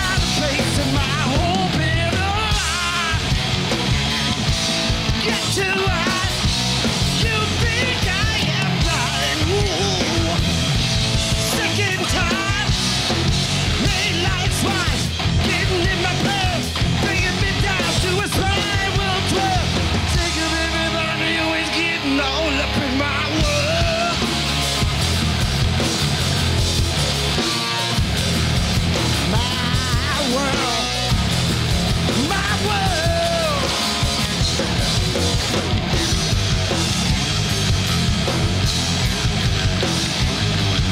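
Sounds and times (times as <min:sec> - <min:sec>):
lead singer singing: 0:00.0 - 0:03.4, 0:05.0 - 0:12.9, 0:13.7 - 0:24.6, 0:29.2 - 0:31.2, 0:32.0 - 0:34.7
bass guitar: 0:00.0 - 0:40.9
drums: 0:00.0 - 0:40.9
electric guitar: 0:00.0 - 0:40.9
live rock band playing: 0:00.0 - 0:40.9.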